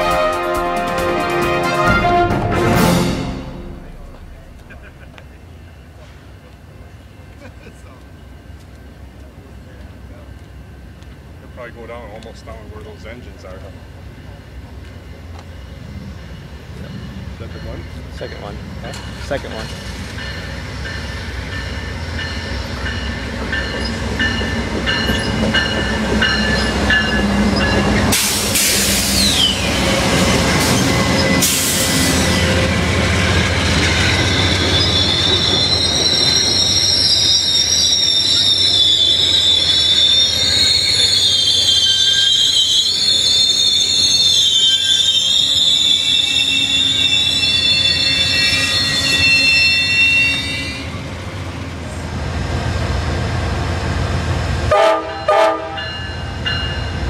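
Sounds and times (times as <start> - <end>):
diesel locomotives rumbling: 0.0 - 57.0
train wheel and brake squeal: 15.5 - 32.7, 33.6 - 51.1.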